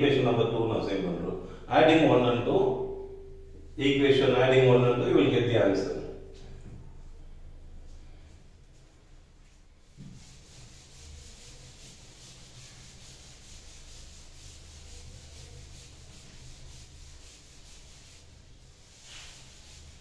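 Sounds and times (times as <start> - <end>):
eraser scrubbing chalkboard: 9.4 - 20.0.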